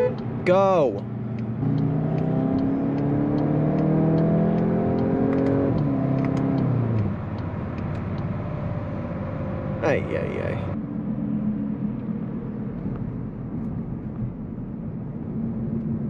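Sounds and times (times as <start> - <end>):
car engine accelerating: 0.0 - 10.8.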